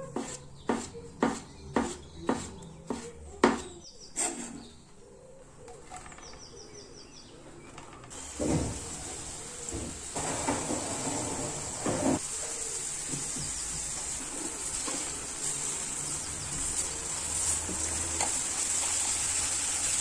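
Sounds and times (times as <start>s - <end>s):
mushrooms sizzling in oil: 8.1s - 20.0s.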